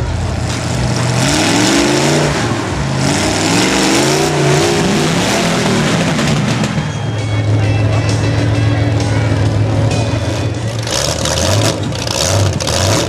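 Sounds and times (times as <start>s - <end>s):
truck engines revving: 0.0s - 13.0s.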